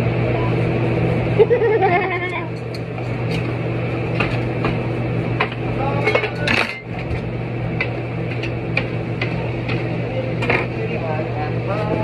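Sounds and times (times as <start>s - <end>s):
steady low hum: 0.0s - 12.0s
dishes and utensils clinking: 6.0s - 6.9s.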